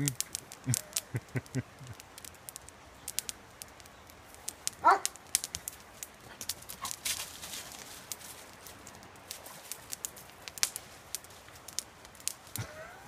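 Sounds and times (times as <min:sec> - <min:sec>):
paws rustling dry leaves: 0:04.4 - 0:11.6
dog barking: 0:04.8 - 0:05.1.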